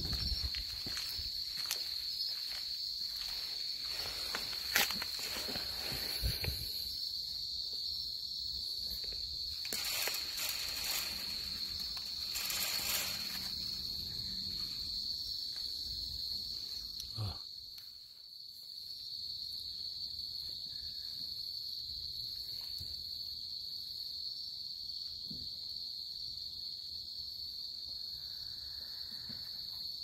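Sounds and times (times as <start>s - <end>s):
crickets trilling: 0.0s - 30.0s
rustling: 8.8s - 15.0s.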